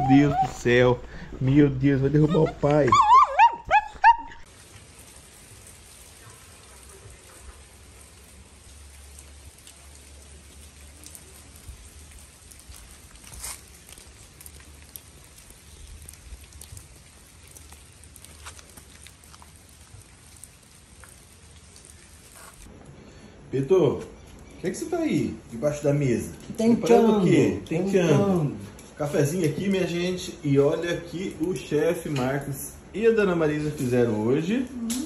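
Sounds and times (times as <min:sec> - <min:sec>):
steady rain falling: 0:00.0 - 0:35.0
individual raindrop ticks: 0:04.0 - 0:23.0, 0:30.9 - 0:32.5.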